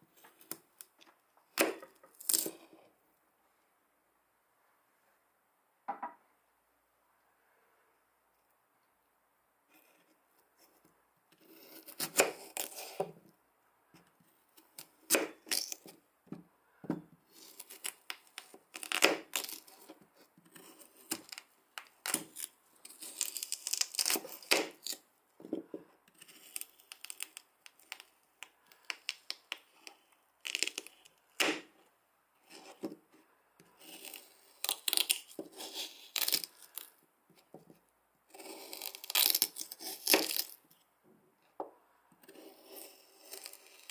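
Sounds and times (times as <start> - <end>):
knife cutting potato: 1.5 - 2.8, 11.4 - 13.2, 14.6 - 16.0, 17.3 - 28.1, 28.8 - 31.7, 32.4 - 33.0, 33.6 - 36.9, 38.3 - 40.6, 42.2 - 43.9.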